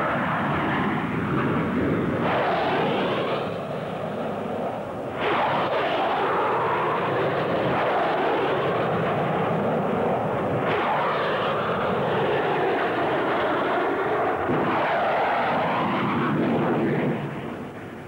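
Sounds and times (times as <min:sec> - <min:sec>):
jet fighters flying low: 0:00.0 - 0:18.0.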